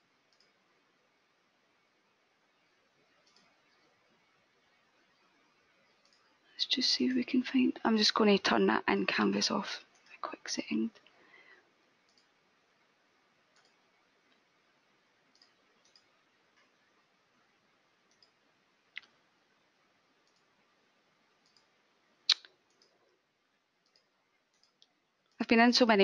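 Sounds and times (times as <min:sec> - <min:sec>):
computer mouse clicking: 0:00.3 - 0:00.6, 0:03.1 - 0:03.9, 0:05.9 - 0:06.3, 0:12.0 - 0:12.4, 0:13.5 - 0:14.4, 0:15.3 - 0:16.7, 0:18.1 - 0:18.4, 0:20.2 - 0:20.5, 0:21.4 - 0:23.0, 0:23.8 - 0:24.9.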